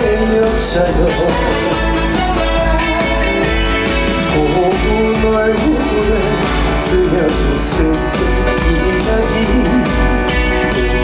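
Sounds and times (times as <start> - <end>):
guitar: 0.0 - 11.0
live trot band music: 0.0 - 11.0
steady low beat: 8.8 - 10.9.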